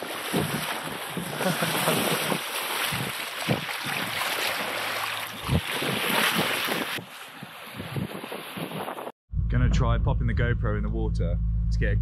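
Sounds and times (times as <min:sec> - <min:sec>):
wind buffeting microphone: 0:00.0 - 0:04.3, 0:05.3 - 0:10.5
water splashing along hull: 0:00.0 - 0:09.1.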